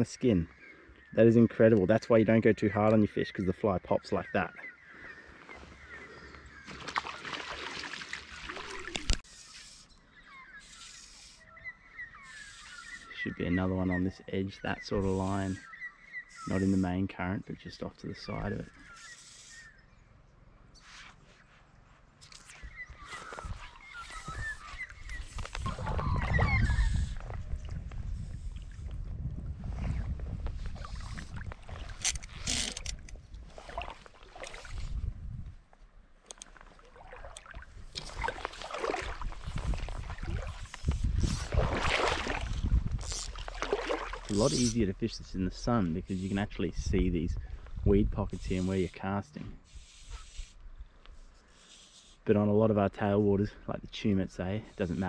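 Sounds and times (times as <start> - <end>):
river water splashing: 6.6 - 9.3, 33.4 - 34.8, 36.3 - 40.8, 41.4 - 42.6, 43.2 - 44.4
faint water hiss: 48.3 - 52.4.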